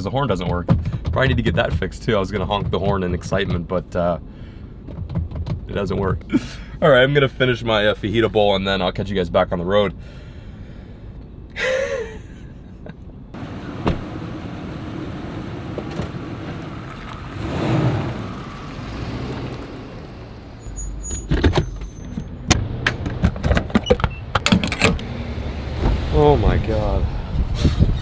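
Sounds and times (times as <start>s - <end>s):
car and road noise: 0.0s - 28.0s
sharp clicks and knocks: 0.4s - 3.7s, 4.8s - 6.1s, 21.2s - 25.1s.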